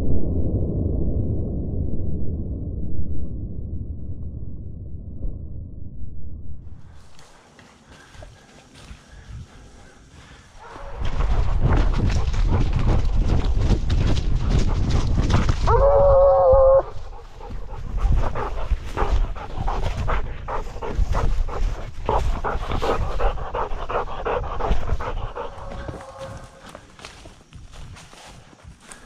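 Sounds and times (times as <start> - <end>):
dog panting: 7.2 - 15.6, 16.8 - 26.8
dog baying: 10.5 - 13.4, 15.6 - 26.8.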